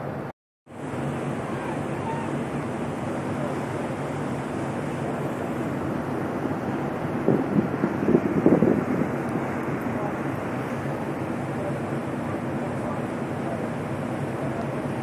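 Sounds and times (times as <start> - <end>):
churning water: 0.0 - 15.0
wind buffeting microphone: 1.0 - 11.4
wind rushing: 5.6 - 9.8.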